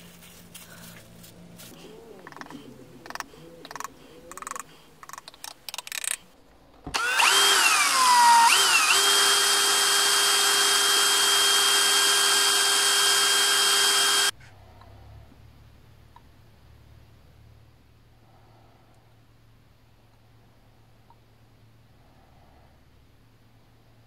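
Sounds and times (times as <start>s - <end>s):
cordless drill motor whine: 6.9s - 14.3s.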